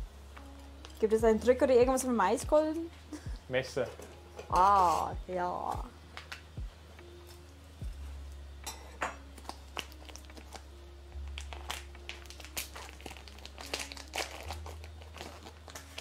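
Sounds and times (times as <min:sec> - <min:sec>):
low steady hum: 0:00.0 - 0:16.0
corn husk crinkling: 0:09.4 - 0:16.0.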